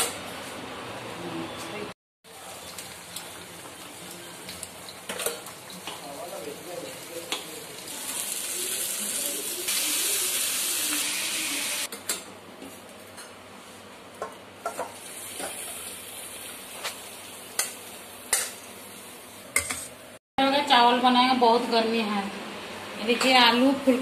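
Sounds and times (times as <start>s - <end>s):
curry sizzling in a pan: 2.3s - 11.9s, 14.7s - 19.9s.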